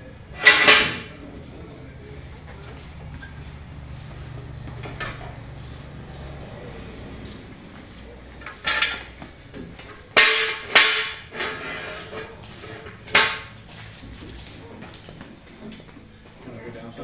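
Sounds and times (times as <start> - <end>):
metal jack stands clanking: 0.4 - 1.2, 8.4 - 9.2, 10.1 - 13.6.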